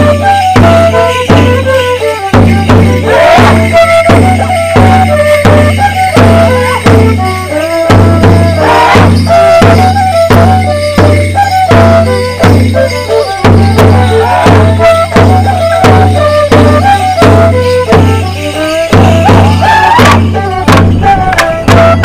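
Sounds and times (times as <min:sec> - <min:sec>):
fiddle melody: 0:00.0 - 0:22.0
sharp percussive beats: 0:00.0 - 0:22.0.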